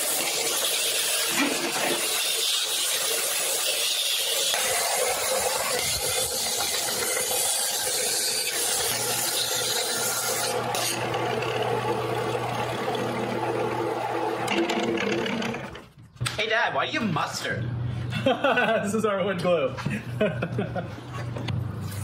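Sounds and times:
sander hissing on wood: 0.0s - 11.2s.

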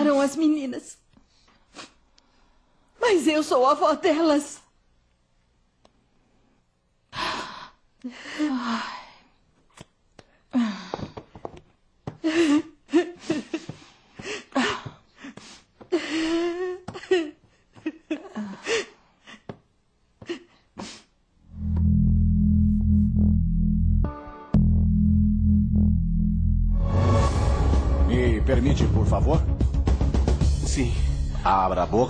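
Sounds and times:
woman sobbing: 12.2s - 19.6s, 20.2s - 21.0s.

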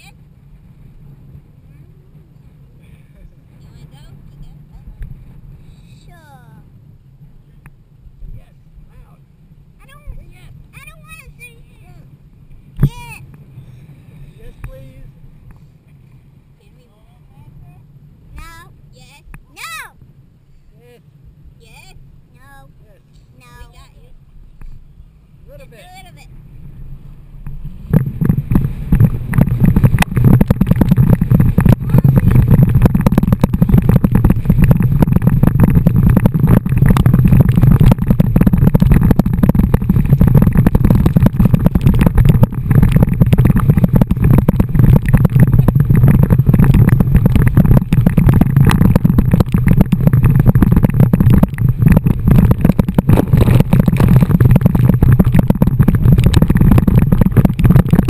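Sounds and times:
water rushing: 25.4s - 58.0s
wind buffeting microphone: 26.2s - 58.0s.

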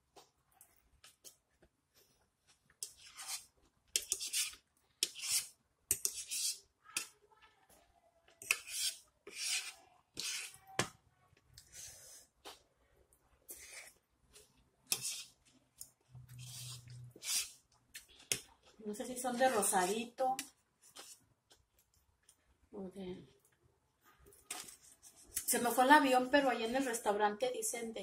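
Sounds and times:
metal fork scraping a plate: 8.4s - 10.6s, 14.9s - 15.3s, 16.3s - 17.6s.

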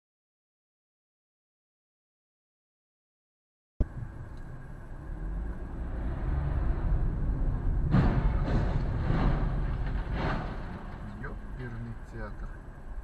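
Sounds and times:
car road and engine rumble: 3.8s - 13.0s
collision crash: 7.5s - 11.8s.

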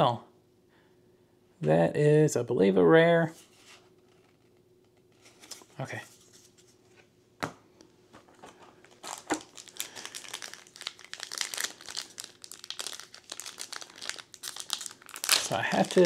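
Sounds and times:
foil pack crinkling: 8.4s - 16.0s.

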